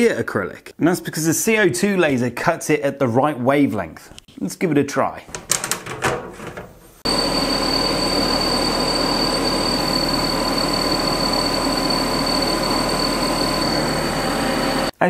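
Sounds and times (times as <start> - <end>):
laser cutter whirring with high whine: 7.1 - 14.9.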